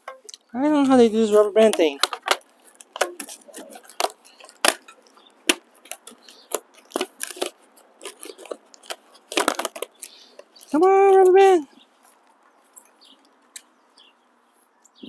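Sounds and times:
hands handling cardboard packing: 0.0s - 14.7s
rubber band pulled: 1.3s - 10.7s.

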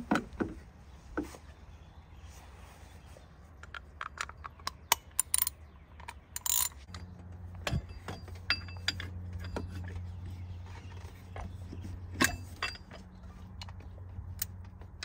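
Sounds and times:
ratchet wrench clicking: 6.4s - 6.8s.

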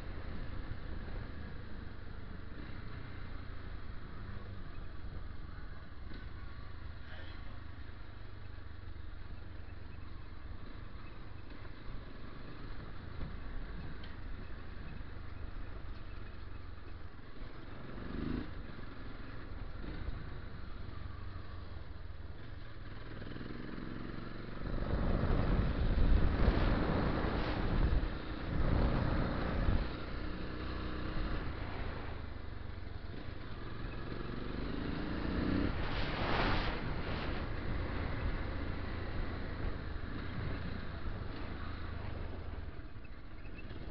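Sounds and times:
wind rumble on microphone: 24.4s - 32.7s, 33.3s - 43.9s.

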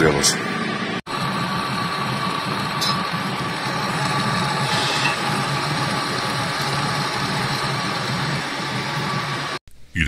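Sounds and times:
metal lathe running with whine: 0.6s - 9.6s
metal cutting scrape: 4.6s - 5.3s.

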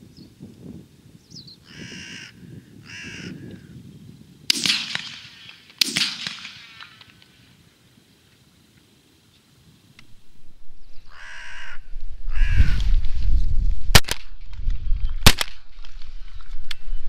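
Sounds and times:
crow cawing: 1.6s - 3.7s, 11.0s - 12.8s
shotgun shots: 4.5s - 7.3s, 13.9s - 14.4s, 15.2s - 15.8s.

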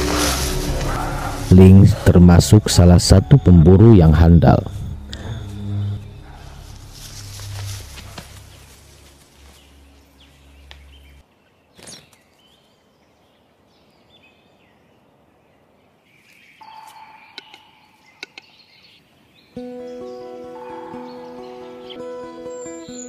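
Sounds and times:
low hum: 0.0s - 11.2s
bird chirps and calls: 16.1s - 23.0s.

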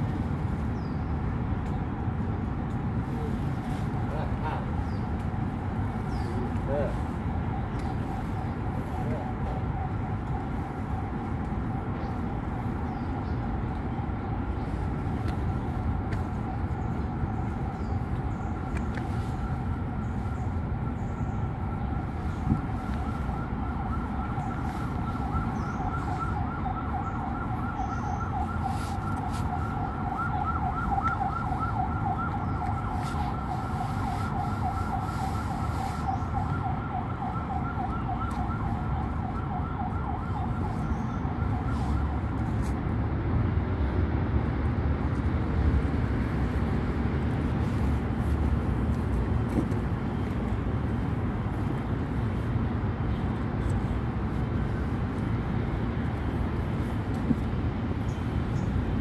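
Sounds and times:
low rumble of city traffic: 0.0s - 59.0s
two-tone warbling siren whine: 17.1s - 42.4s.

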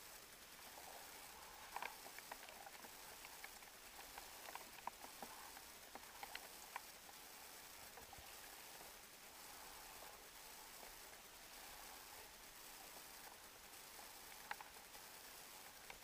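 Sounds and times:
low hiss: 0.0s - 16.0s.

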